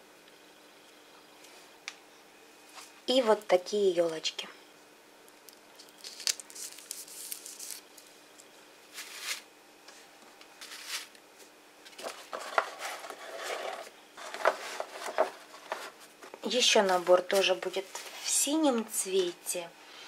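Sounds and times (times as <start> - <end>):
shrink-wrap crinkling: 5.4 - 8.2, 11.9 - 17.8
cardboard boxes handled: 11.9 - 16.4.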